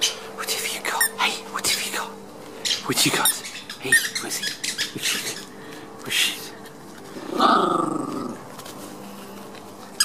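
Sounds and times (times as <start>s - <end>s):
dog growling: 7.1s - 8.5s.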